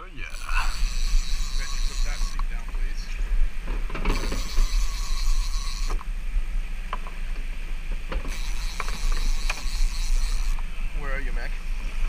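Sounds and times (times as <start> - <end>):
fishing reel ratcheting: 0.3 - 2.5, 4.1 - 6.1, 8.3 - 10.6.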